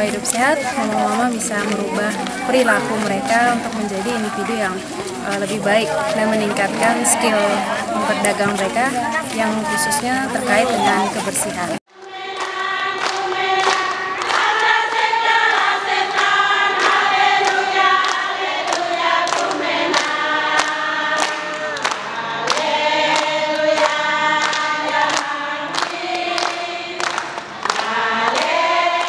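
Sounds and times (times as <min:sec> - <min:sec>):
women singing in unison: 0:00.0 - 0:29.0
hands clapping on the beat: 0:12.0 - 0:29.0.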